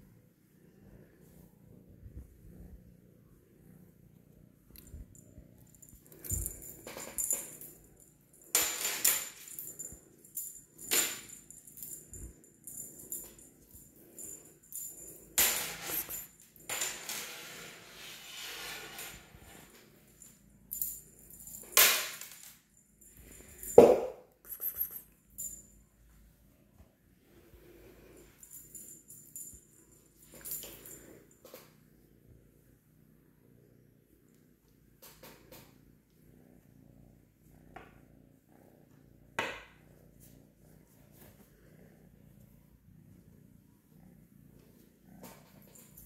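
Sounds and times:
cat toy rattling and jingling: 4.8s - 17.1s.

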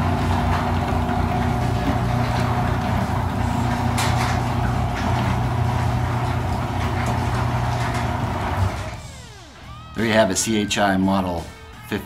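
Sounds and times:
garage door opener motor humming: 0.0s - 9.9s.

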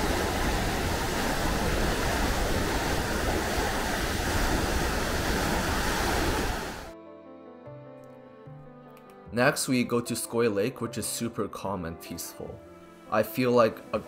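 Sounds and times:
waterfall rushing: 0.0s - 6.9s.

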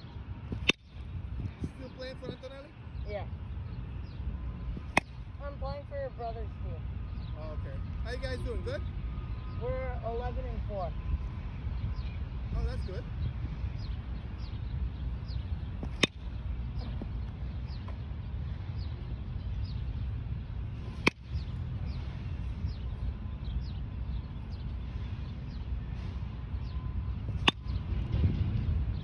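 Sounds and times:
small birds chirping: 0.0s - 29.0s
wind rumble on microphone: 0.0s - 29.0s
baseball bat cracking ball: 4.8s - 5.2s, 15.8s - 16.3s, 20.8s - 21.4s, 27.3s - 27.8s.

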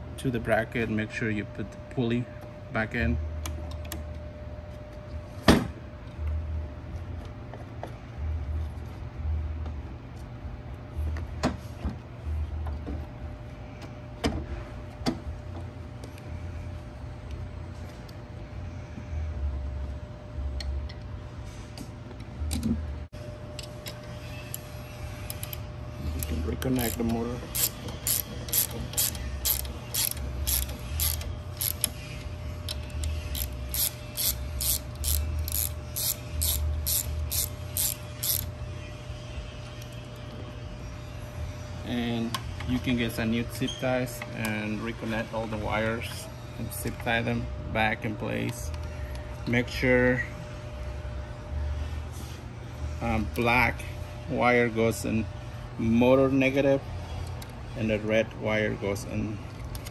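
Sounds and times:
socket ratchet clicking: 26.2s - 32.0s, 32.7s - 38.5s.

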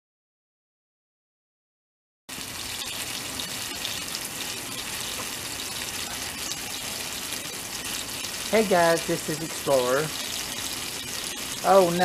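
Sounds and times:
water spraying from hose: 2.3s - 12.0s.

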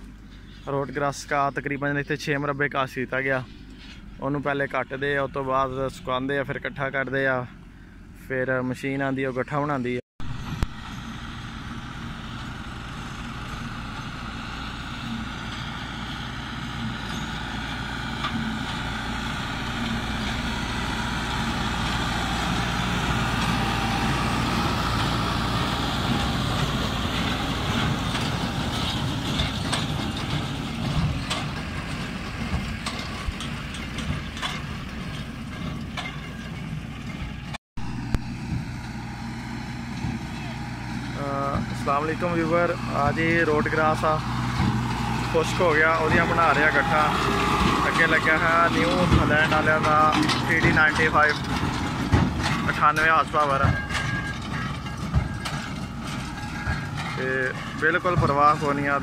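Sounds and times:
tractor diesel engine running: 0.0s - 9.2s, 9.8s - 59.0s
baler clicking and rattling: 11.6s - 37.6s, 41.3s - 59.0s.

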